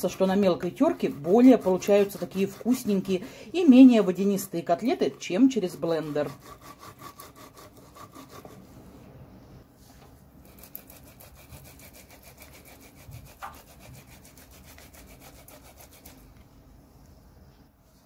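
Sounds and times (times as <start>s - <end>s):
carrot scraping on a grater: 0.0s - 8.6s, 10.5s - 16.2s.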